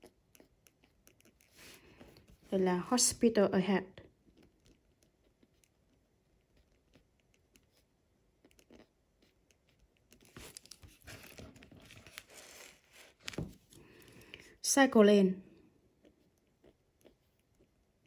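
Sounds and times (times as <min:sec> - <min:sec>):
paper rustling: 0:10.2 - 0:13.9.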